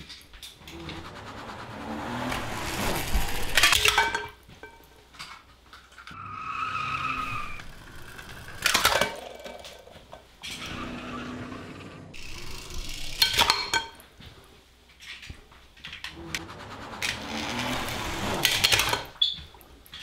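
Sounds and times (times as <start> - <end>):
high squeal like skidding tyres: 6.2 - 8.3, 10.6 - 12.1.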